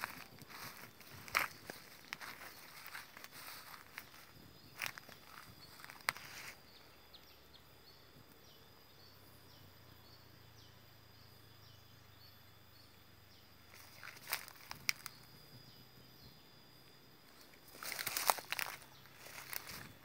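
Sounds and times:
footsteps crunching on dry leaves: 0:00.0 - 0:06.6, 0:13.7 - 0:15.2, 0:17.3 - 0:20.0
high insect drone: 0:00.0 - 0:20.0.

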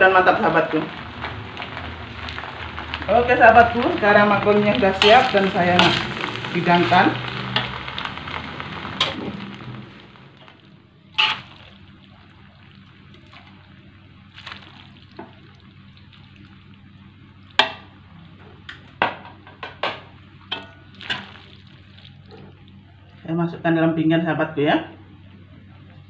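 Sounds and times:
pan hissing: 0:00.2 - 0:16.7.

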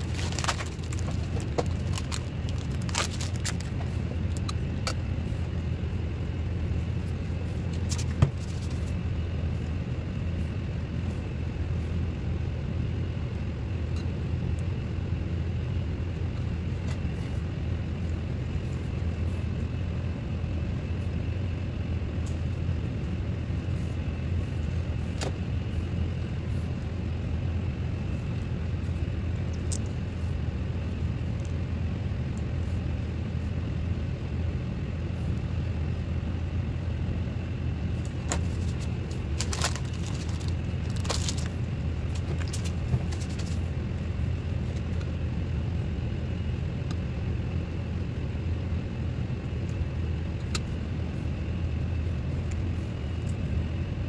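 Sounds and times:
low hum of running machinery: 0:00.0 - 0:54.0.

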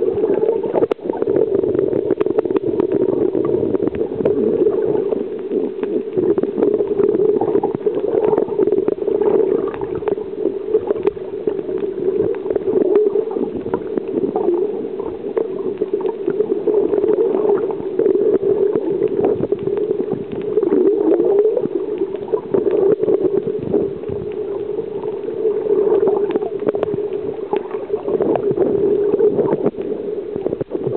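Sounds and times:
faint clicks and crackles: 0:00.0 - 0:30.9
muffled underwater drone: 0:00.0 - 0:30.9.

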